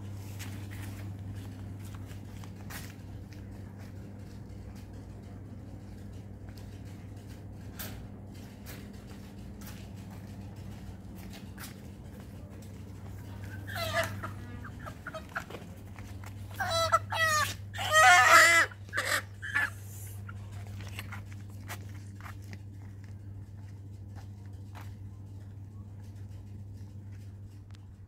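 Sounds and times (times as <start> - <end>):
steady low hum: 0.0 - 28.0
chickens squawking and clucking: 13.2 - 20.4.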